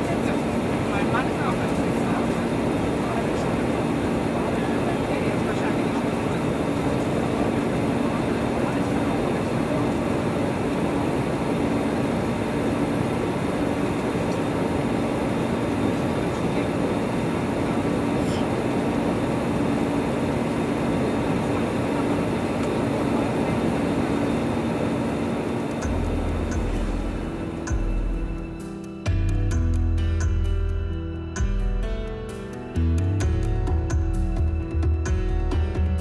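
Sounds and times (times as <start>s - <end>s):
rush of air in cabin: 0.0s - 27.7s
low hum: 0.0s - 32.1s
jet engines droning: 0.0s - 36.0s.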